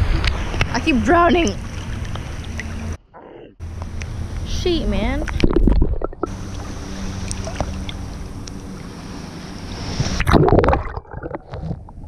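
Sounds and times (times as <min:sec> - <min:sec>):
wind buffeting microphone: 0:00.0 - 0:03.0
sea water sloshing: 0:00.1 - 0:03.0, 0:05.2 - 0:12.0.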